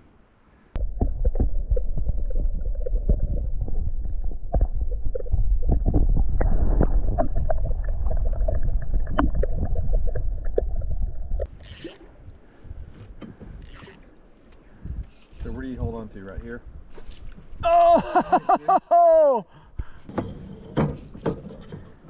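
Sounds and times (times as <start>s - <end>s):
underwater river current rumble: 0.8s - 12.2s.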